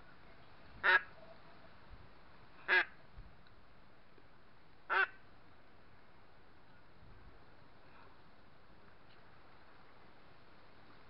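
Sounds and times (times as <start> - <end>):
duck quacks: 0.8 - 1.1, 2.6 - 3.0, 4.9 - 5.2.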